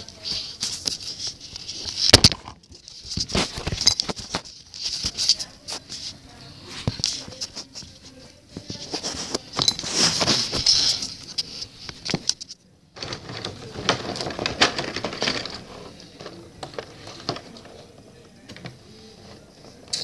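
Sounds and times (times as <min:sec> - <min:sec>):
cardboard box rustling and scraping: 0:08.7 - 0:11.0.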